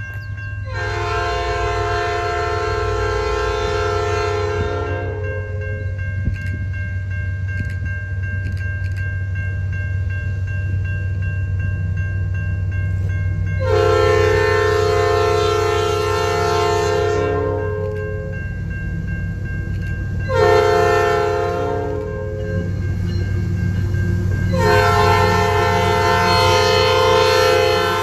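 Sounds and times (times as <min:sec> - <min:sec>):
train rumbling: 0:00.0 - 0:28.0
train air horn blasts: 0:00.7 - 0:05.6, 0:13.6 - 0:18.0, 0:20.3 - 0:22.7, 0:24.5 - 0:28.0.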